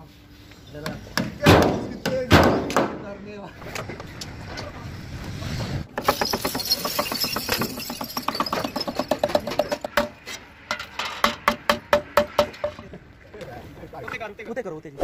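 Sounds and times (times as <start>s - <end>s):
metal chains jangling: 6.0s - 9.8s.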